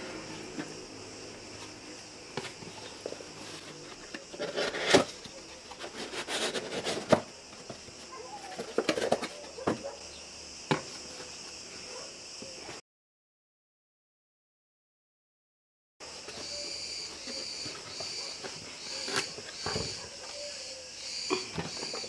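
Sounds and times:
insects chirring: 0:00.0 - 0:12.8, 0:16.0 - 0:22.0
cardboard rustling and scraping: 0:00.2 - 0:10.0, 0:16.0 - 0:20.5.

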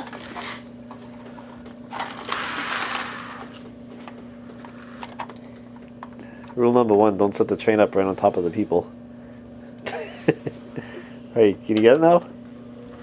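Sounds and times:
low electrical hum: 0:00.0 - 0:13.0
electric motor whirring: 0:01.9 - 0:03.8.

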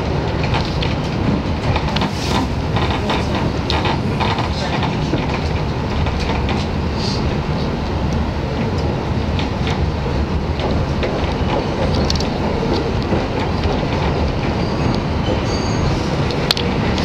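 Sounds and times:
clicks over rail joints: 0:00.0 - 0:06.8, 0:08.1 - 0:15.4, 0:16.2 - 0:17.0
train wheels rumbling on rails: 0:00.0 - 0:17.0
high wheel squeal: 0:14.1 - 0:16.2.

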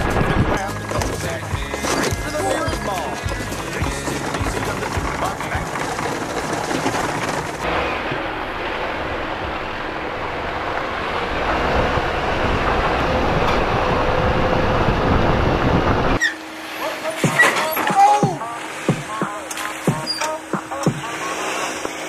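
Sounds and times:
vehicle rumble on dirt track: 0:00.0 - 0:16.5.

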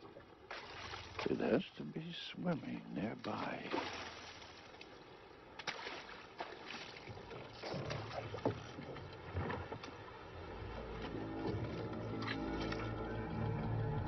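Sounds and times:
water lapping against boat: 0:00.0 - 0:14.0
boat knocks and squeaks: 0:07.0 - 0:14.0.

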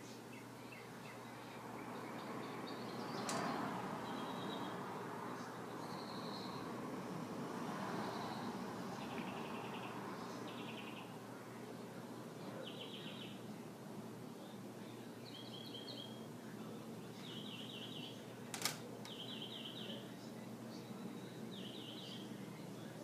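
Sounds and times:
faint high-pitched chirping: 0:15.2 - 0:16.3.

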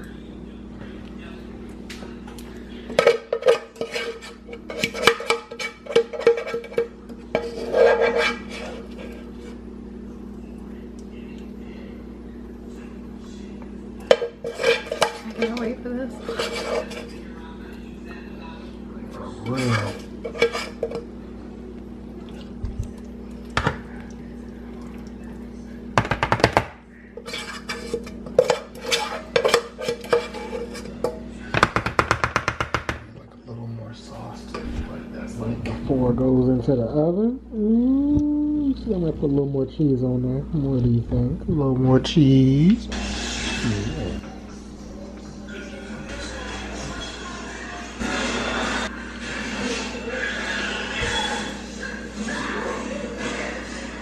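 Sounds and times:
spoon scraping a saucepan: 0:02.9 - 0:09.6, 0:14.0 - 0:17.3, 0:19.4 - 0:21.1, 0:27.2 - 0:31.2.

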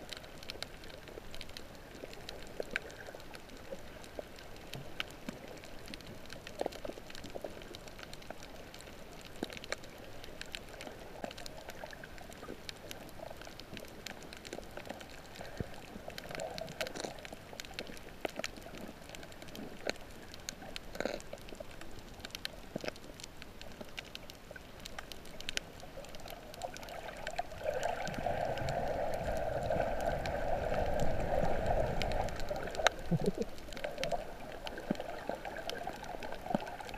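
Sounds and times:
gurgling rush of water: 0:00.0 - 0:36.9
underwater clicks and crackles: 0:00.0 - 0:36.9
underwater hiss: 0:27.6 - 0:36.9.

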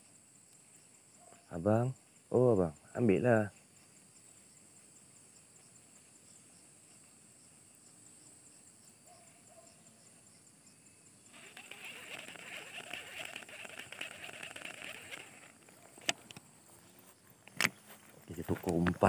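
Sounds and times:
fishing reel whirring: 0:11.3 - 0:15.8
fishing reel clicks: 0:11.4 - 0:16.2.

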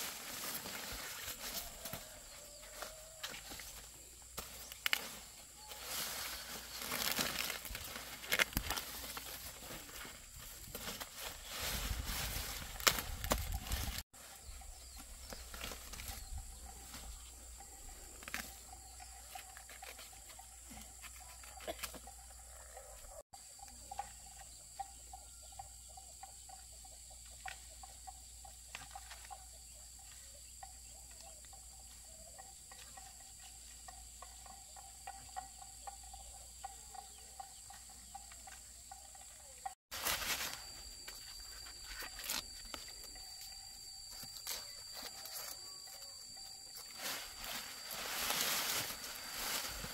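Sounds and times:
high-pitched insect chirring: 0:30.4 - 0:49.9.

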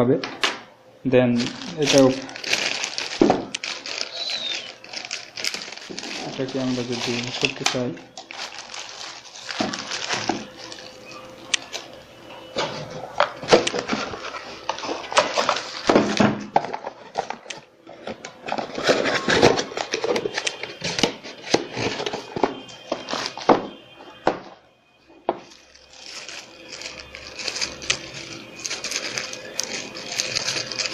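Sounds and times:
plastic bag crinkling: 0:01.1 - 0:24.3, 0:25.3 - 0:30.9.

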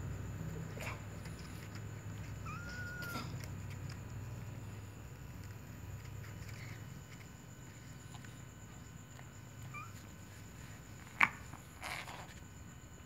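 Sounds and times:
faint cat chirps: 0:02.4 - 0:03.4
cat crying: 0:02.4 - 0:03.5.

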